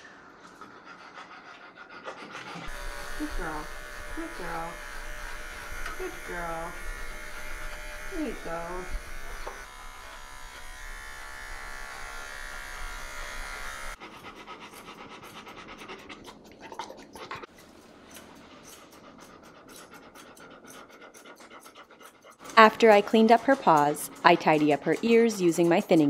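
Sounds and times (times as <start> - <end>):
dog panting: 0.2 - 6.8, 14.0 - 26.0
electric pet clipper buzzing: 2.6 - 14.0, 22.4 - 26.0
scissors snipping fur: 3.2 - 9.6, 18.1 - 26.0.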